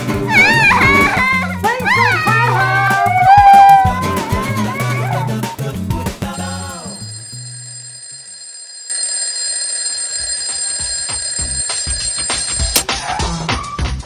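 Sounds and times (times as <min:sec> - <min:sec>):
high-pitched ringing tone: 0:06.4 - 0:12.8.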